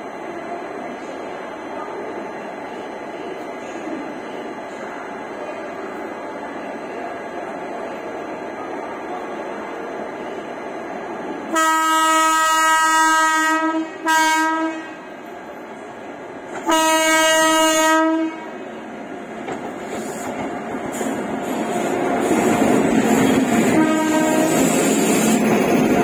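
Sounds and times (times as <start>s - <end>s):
locomotive horn blasts: 11.5s - 15.0s, 16.6s - 18.5s, 23.7s - 24.7s
train running rumble: 16.4s - 26.0s.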